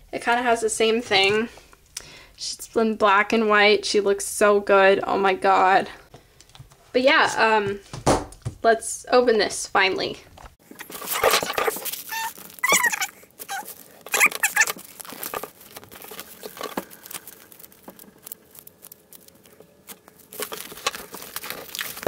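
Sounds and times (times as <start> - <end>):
plastic wrapping crinkling: 10.6 - 22.0.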